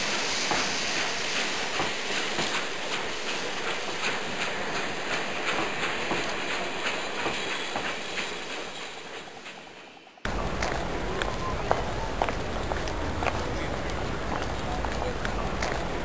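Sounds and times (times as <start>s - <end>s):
model steam locomotive hiss: 0.0s - 10.2s.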